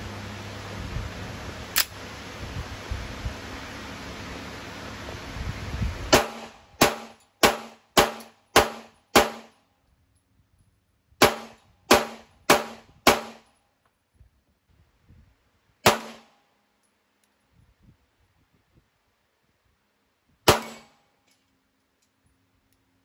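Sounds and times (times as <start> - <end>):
pistol shots with metallic ring: 6.1 - 9.6, 11.2 - 13.6, 15.8 - 16.2, 20.5 - 21.0.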